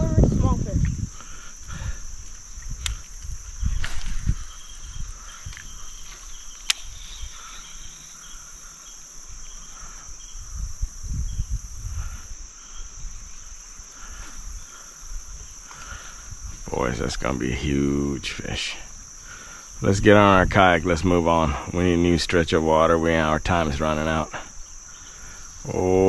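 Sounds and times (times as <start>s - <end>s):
insects droning: 0.0s - 26.0s
sharp clicks: 6.5s - 7.0s.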